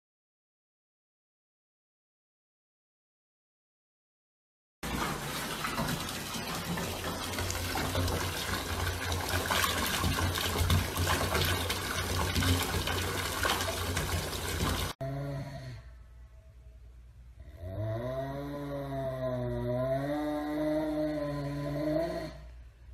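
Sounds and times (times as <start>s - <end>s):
water splashing into bath: 4.8s - 15.0s.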